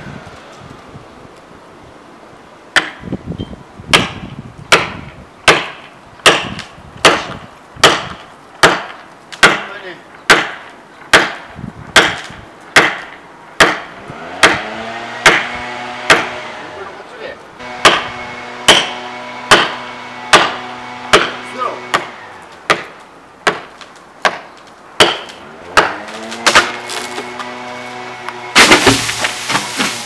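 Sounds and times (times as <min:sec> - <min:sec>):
hand tool striking wood: 0:02.8 - 0:03.0, 0:03.9 - 0:09.7, 0:10.3 - 0:15.5, 0:16.1 - 0:16.4, 0:17.8 - 0:18.1, 0:18.7 - 0:22.1, 0:22.7 - 0:27.6, 0:28.6 - 0:30.0.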